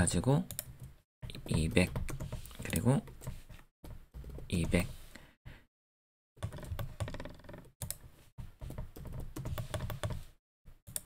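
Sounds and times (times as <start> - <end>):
computer keyboard typing: 0.5 - 3.4, 6.4 - 10.2.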